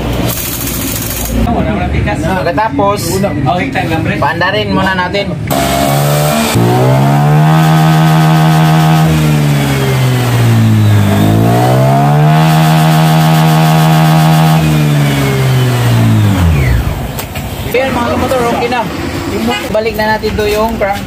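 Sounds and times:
scooter engine revving: 5.5 - 19.6.

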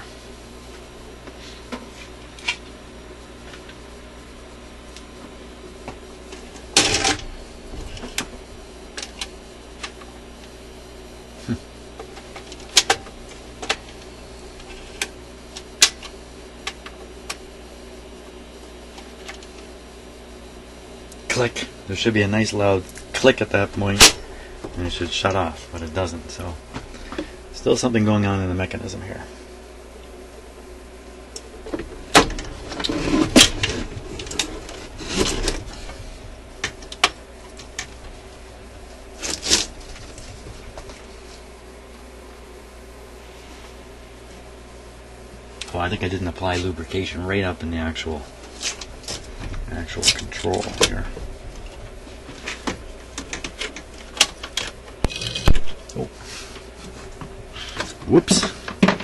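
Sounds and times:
steady low hum: 0.0 - 59.0
record changer mechanism clicking: 12.0 - 17.4, 36.6 - 38.2.

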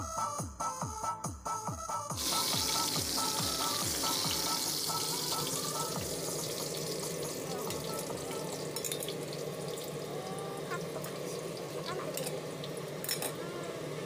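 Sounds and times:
electronic music with a beat: 0.0 - 6.3
meat sizzling in a frying pan: 2.2 - 14.0.

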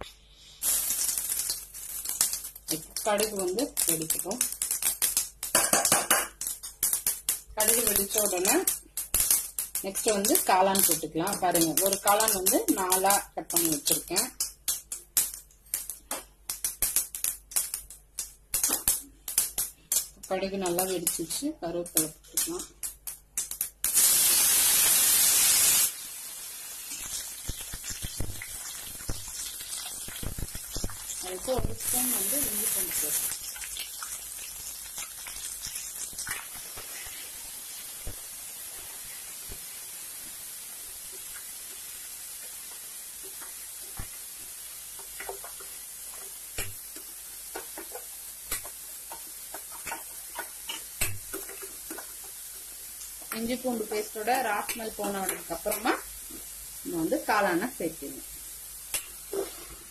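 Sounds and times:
leaves sizzling in hot oil: 0.4 - 59.9
oil crackling: 0.6 - 39.2.

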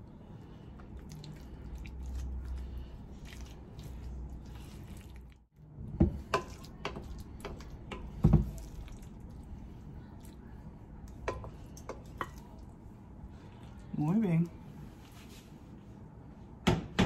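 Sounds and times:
spoon squishing and scraping dip: 0.4 - 5.5, 6.2 - 12.8.

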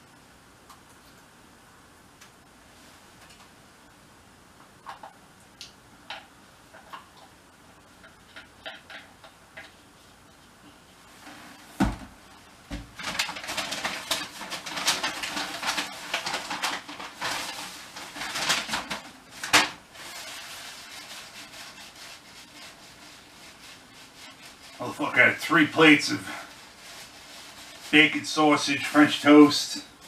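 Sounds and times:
crinkling and rustling: 6.1 - 30.0.

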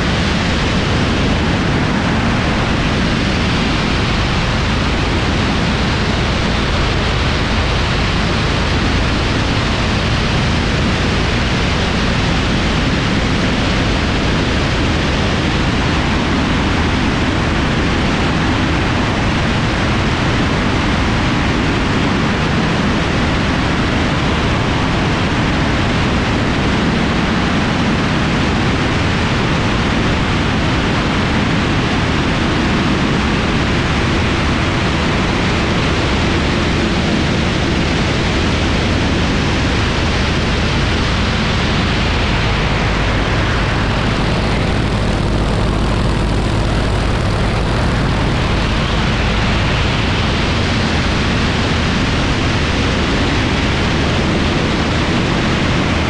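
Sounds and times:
propeller engines droning: 0.0 - 56.0
wind rushing: 33.2 - 56.0.

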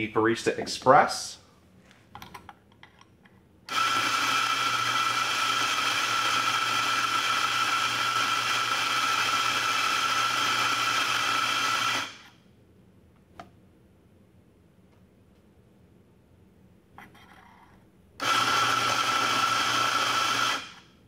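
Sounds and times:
electric coffee grinder whining: 3.7 - 12.3, 18.2 - 20.8.

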